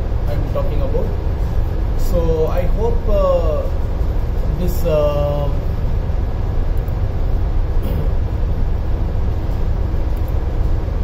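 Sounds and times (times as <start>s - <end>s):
ship engine low rumble: 0.0s - 11.0s.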